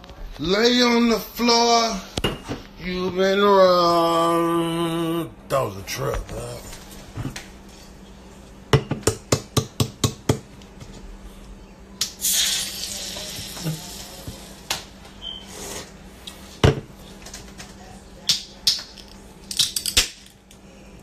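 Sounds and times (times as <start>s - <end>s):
can hiss: 12.2s - 13.9s.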